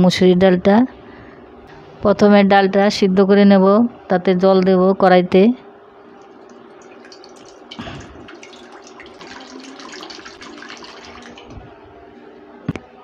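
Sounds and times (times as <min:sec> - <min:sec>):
water pouring into a metal wok: 0:06.2 - 0:11.7.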